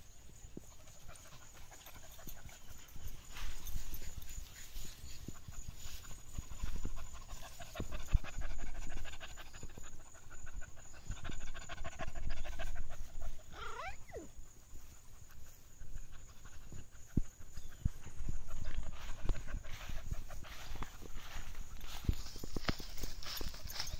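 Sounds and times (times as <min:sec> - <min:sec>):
small dog panting: 0:00.6 - 0:14.3, 0:15.1 - 0:23.9
dog squeal: 0:13.5 - 0:14.3.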